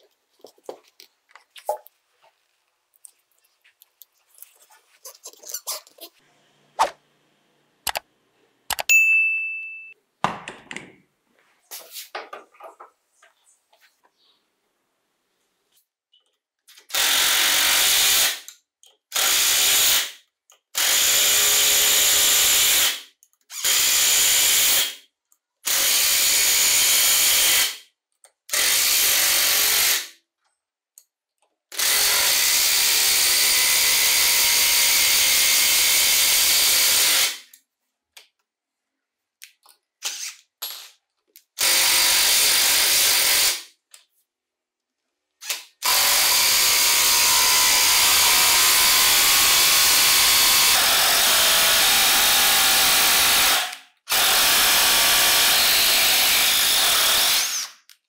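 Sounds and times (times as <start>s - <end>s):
small clicks: 7.9s - 8.1s, 8.7s - 8.9s
impact driver driving screws into wood: 45.4s - 57.9s.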